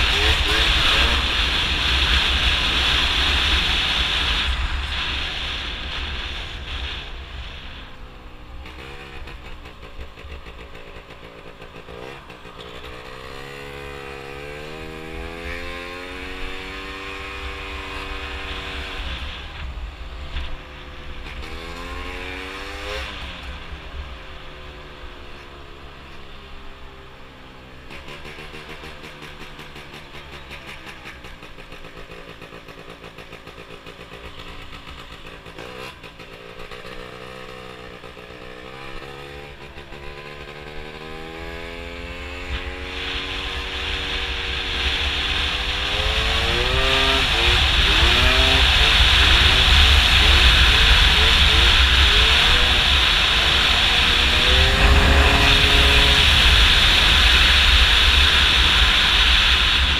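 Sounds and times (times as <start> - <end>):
scooter engine revving: 0.0 - 20.0, 27.6 - 59.9
low wind rumble: 42.3 - 59.9.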